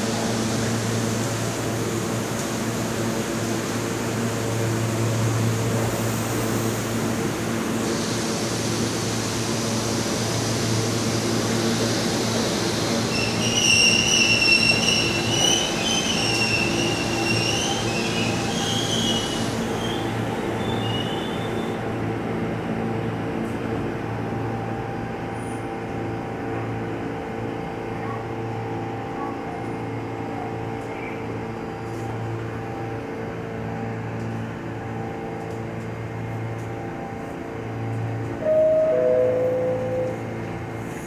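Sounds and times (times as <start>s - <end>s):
subway train rumbling: 0.0s - 41.0s
train brakes squealing: 13.0s - 21.8s, 38.4s - 40.4s.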